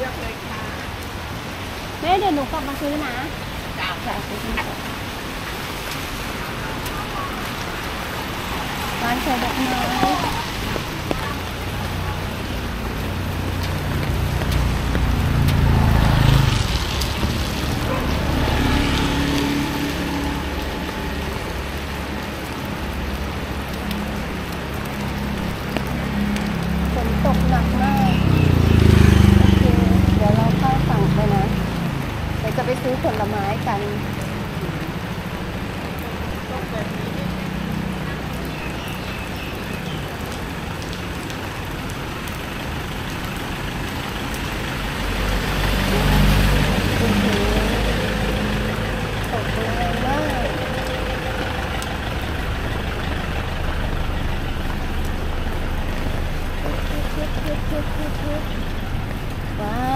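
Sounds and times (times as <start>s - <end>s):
passing traffic engine hum: 0.0s - 59.9s
rain falling on wet street: 0.0s - 59.9s
vehicle engine running: 45.3s - 59.9s.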